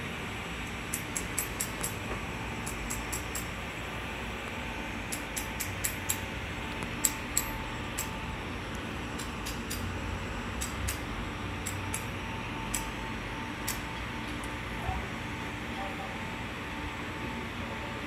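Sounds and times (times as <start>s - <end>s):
electric train hum: 0.0s - 18.0s
sharp metallic ticks: 0.6s - 2.0s, 2.6s - 3.6s, 5.1s - 6.2s, 7.0s - 8.2s, 9.2s - 9.9s, 10.6s - 12.1s, 12.7s - 13.0s, 13.6s - 13.9s.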